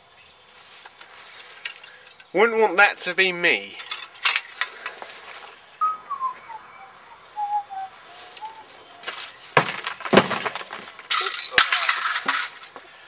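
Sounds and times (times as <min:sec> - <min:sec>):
whistled notes: 0:05.8 - 0:09.1.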